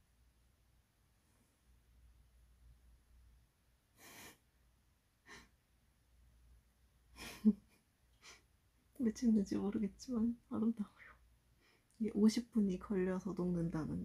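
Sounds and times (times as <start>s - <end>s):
person breathing: 4.0s - 4.4s, 11.5s - 11.9s.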